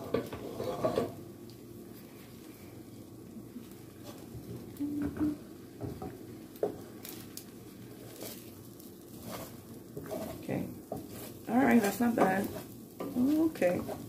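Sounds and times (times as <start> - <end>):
wooden spatula scraping a pan: 0.0 - 1.2, 4.0 - 4.3, 7.9 - 14.0
steady low hum: 0.0 - 14.0.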